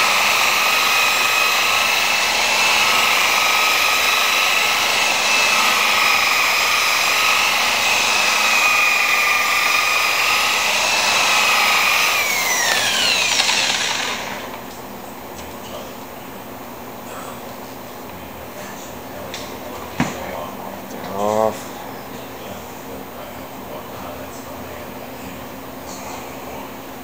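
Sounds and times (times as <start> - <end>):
car polisher motor whine: 0.0 - 14.7.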